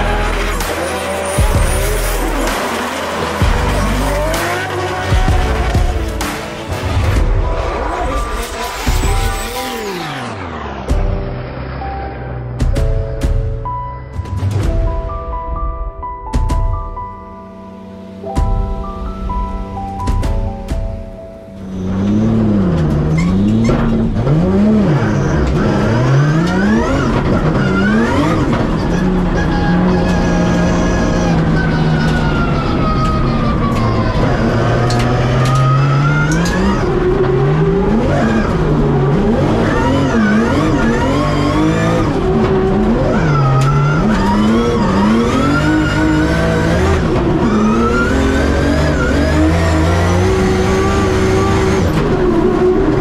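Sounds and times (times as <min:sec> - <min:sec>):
background music with a beat: 0:00.0 - 0:07.8, 0:10.8 - 0:11.4, 0:12.5 - 0:21.6
car engine revving: 0:00.0 - 0:13.4, 0:21.6 - 0:53.0
tyres squealing: 0:24.7 - 0:36.8.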